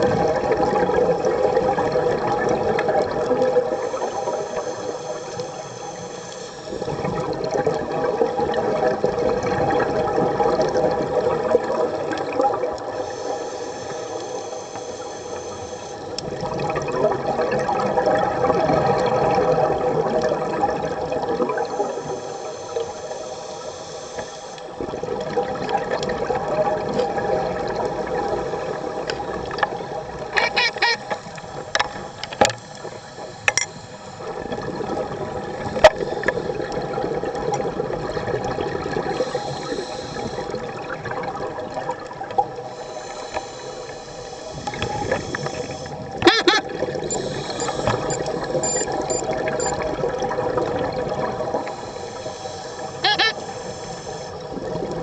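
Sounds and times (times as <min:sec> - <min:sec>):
underwater bubbling of exhaled air: 0:00.0 - 0:55.0
steady hum: 0:47.0 - 0:49.7.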